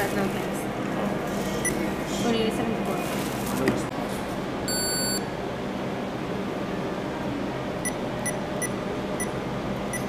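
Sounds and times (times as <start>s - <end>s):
air conditioning hum: 0.0s - 10.0s
short electronic beeps: 4.7s - 5.2s.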